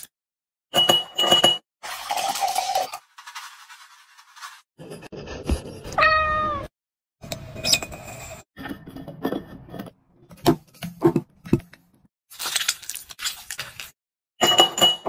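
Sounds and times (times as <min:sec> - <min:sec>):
cat meowing: 0:06.0 - 0:06.7.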